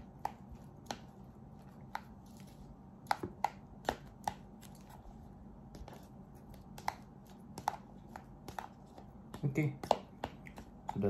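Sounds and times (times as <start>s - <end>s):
plastic fork tapping cup: 3.1s - 4.4s, 6.6s - 11.0s.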